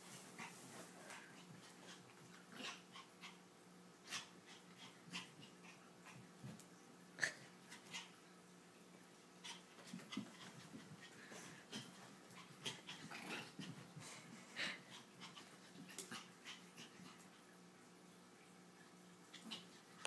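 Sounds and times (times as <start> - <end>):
soft dog play noises: 0.0 - 20.0
dog panting: 9.4 - 17.4.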